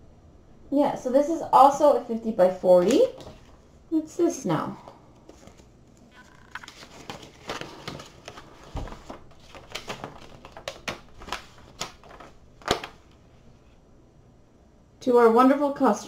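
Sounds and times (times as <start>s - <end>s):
paper rustling and crackling: 5.2s - 13.2s.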